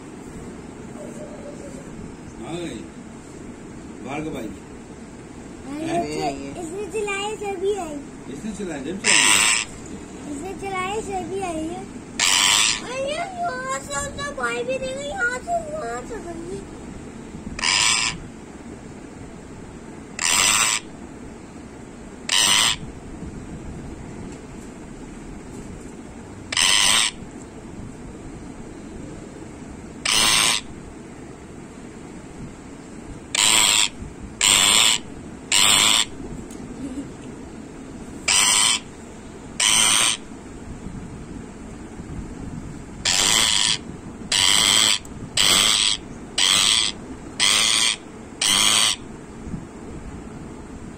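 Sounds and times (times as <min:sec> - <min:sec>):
parakeet harsh raspy calls: 0:09.0 - 0:09.8, 0:12.2 - 0:13.8, 0:17.6 - 0:18.3, 0:20.2 - 0:21.0, 0:22.2 - 0:22.9, 0:26.5 - 0:27.3, 0:30.0 - 0:30.8, 0:33.3 - 0:36.2, 0:38.3 - 0:39.0, 0:39.6 - 0:40.4, 0:43.0 - 0:49.1.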